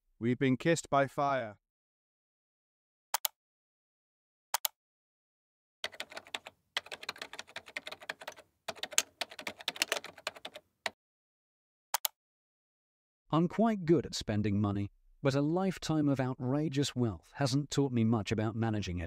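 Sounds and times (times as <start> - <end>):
keyboard typing: 5.8 - 11.0.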